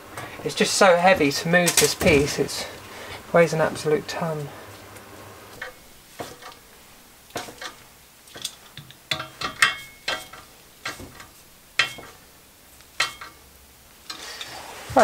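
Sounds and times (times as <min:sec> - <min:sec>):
wrench clinking on steel frame: 0:08.4 - 0:12.2, 0:13.0 - 0:13.4.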